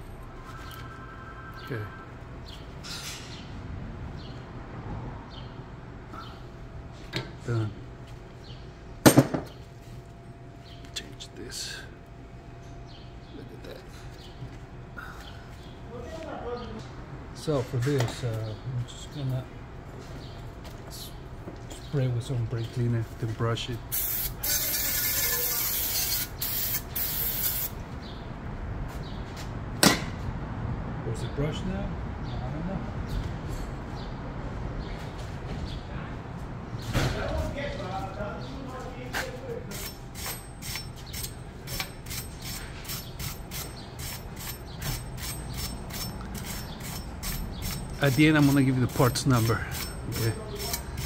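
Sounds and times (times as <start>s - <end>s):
aerosol spray hissing: 24.0s - 27.7s.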